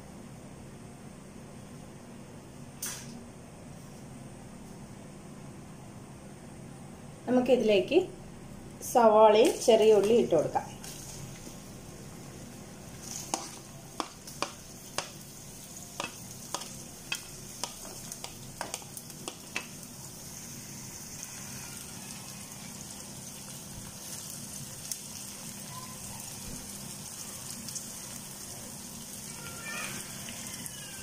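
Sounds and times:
onions sizzling in oil: 8.9 - 31.0
wooden spatula tapping pan: 13.3 - 15.2, 16.0 - 19.7.

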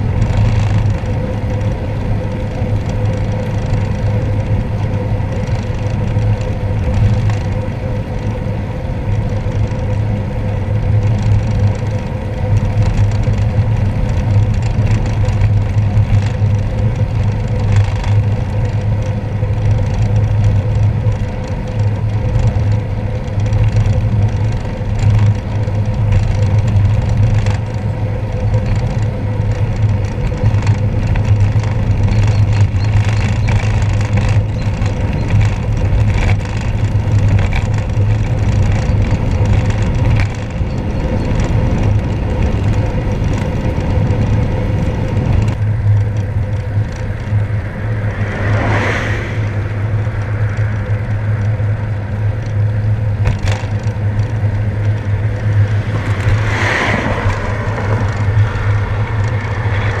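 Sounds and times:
tyres rumbling on wet road: 0.0 - 60.0
loud swishing: 48.0 - 50.0.

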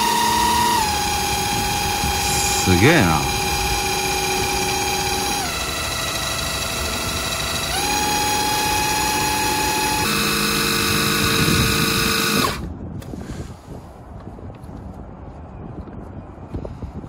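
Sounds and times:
impact driver motor whine: 0.0 - 12.7.

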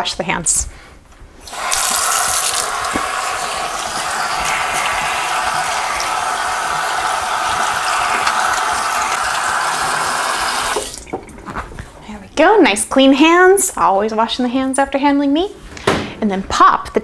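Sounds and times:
faucet running into sink: 1.4 - 11.4
hands washing under water: 1.4 - 11.9.

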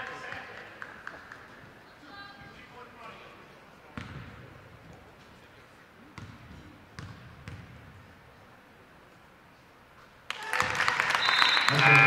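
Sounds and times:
basketball bouncing on hardwood: 4.0 - 4.3, 6.2 - 7.8.

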